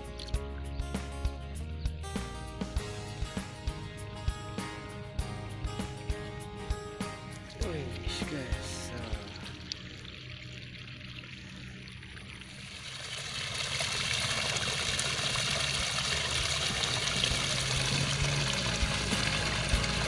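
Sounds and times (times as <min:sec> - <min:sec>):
water trickling: 0:07.2 - 0:20.0.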